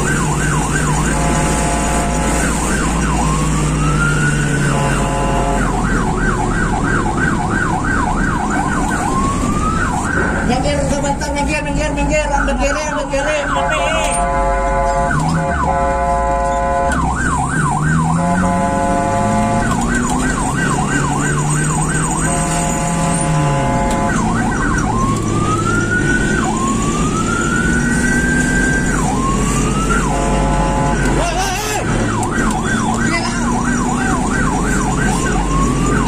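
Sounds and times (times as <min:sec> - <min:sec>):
ambulance siren: 0:00.0 - 0:36.0
road and engine noise: 0:00.0 - 0:36.0.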